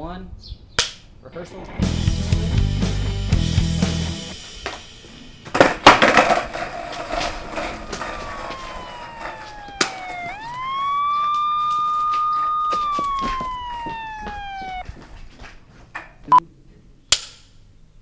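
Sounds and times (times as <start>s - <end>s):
police siren wailing: 7.6s - 14.8s.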